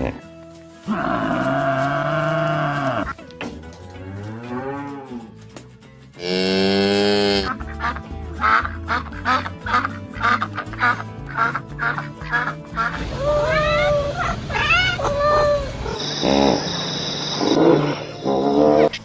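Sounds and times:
cattle mooing: 0.9 - 3.1, 6.2 - 7.6
duck quacking: 7.2 - 13.1.

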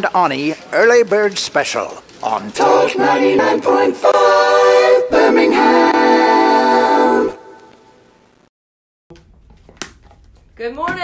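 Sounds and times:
sung radio jingle: 2.2 - 8.0.

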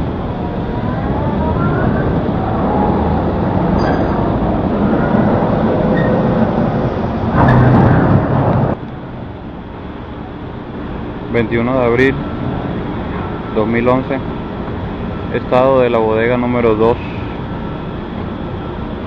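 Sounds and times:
faint whining tones: 0.0 - 19.0
heavy machinery rumbling: 0.0 - 19.0
loud grinding surge: 2.1 - 8.8.

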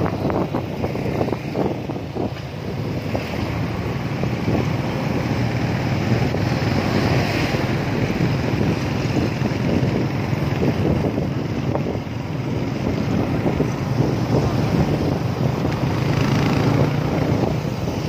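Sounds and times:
road noise: 0.0 - 18.0
wind buffeting microphone: 0.0 - 18.0
motorcycle engine running: 8.0 - 18.0.

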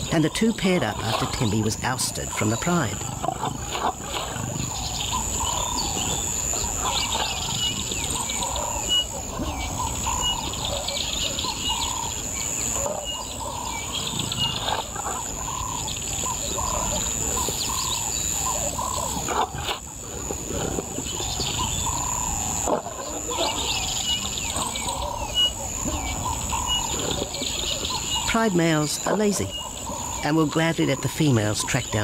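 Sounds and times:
bird calling: 0.0 - 32.0
high-pitched insect drone: 0.0 - 32.0.

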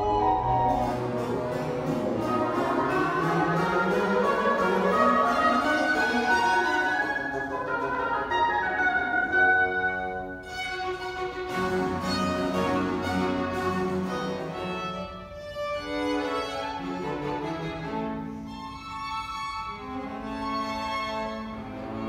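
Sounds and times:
cello bass line: 0.0 - 8.5
violins and viola bowing: 0.0 - 22.0.

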